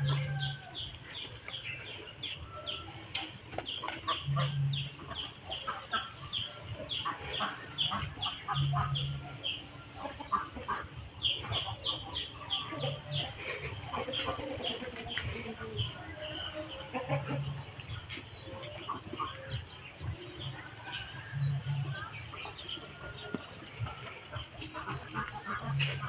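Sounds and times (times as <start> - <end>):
chickens clucking and chirping: 0.0 - 26.0.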